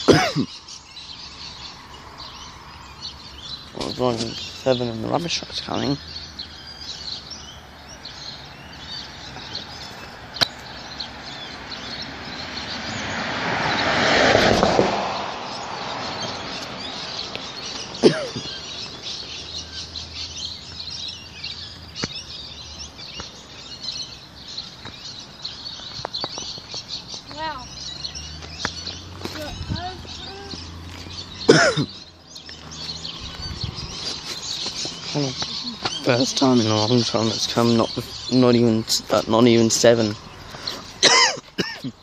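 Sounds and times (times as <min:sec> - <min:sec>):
birds chirping: 0:00.0 - 0:42.0
vehicle passing by: 0:01.0 - 0:23.0, 0:23.6 - 0:41.0.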